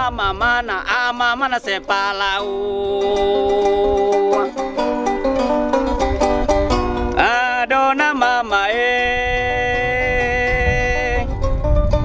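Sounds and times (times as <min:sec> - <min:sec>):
man singing wavering phrase: 0:00.0 - 0:04.7.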